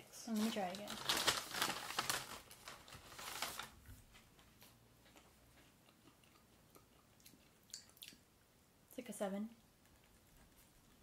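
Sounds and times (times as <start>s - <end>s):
paper bag rustling: 0.3s - 4.1s.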